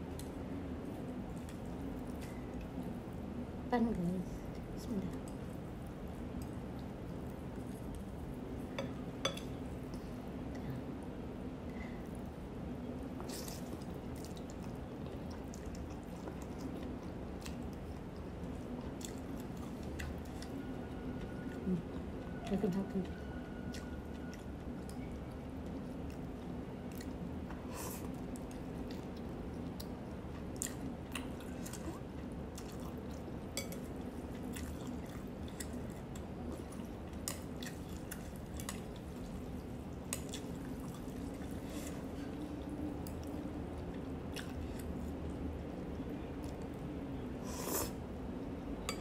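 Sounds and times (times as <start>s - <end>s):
steady low hum: 0.0s - 49.0s
chewing and mouth noises: 13.2s - 45.7s.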